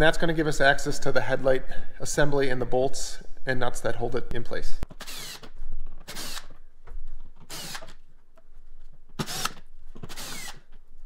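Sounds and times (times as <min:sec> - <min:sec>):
drill backing out screws: 0:05.0 - 0:06.5, 0:07.4 - 0:08.0, 0:09.2 - 0:10.7.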